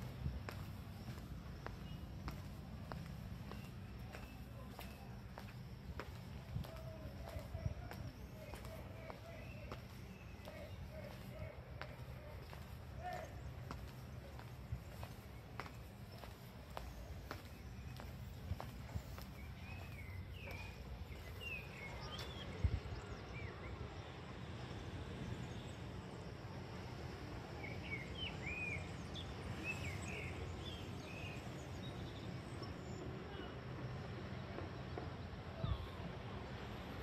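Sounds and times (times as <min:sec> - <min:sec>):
chirping bird calls: 0:00.0 - 0:23.6.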